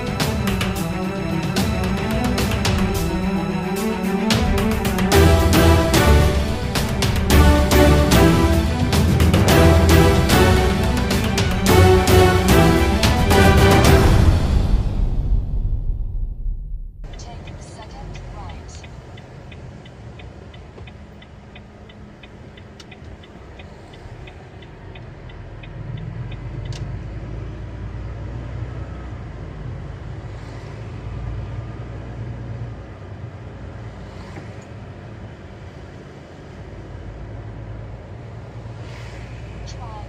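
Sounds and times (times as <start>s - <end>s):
truck diesel engine running: 0.0s - 15.8s
turn signal ticking: 17.0s - 29.2s.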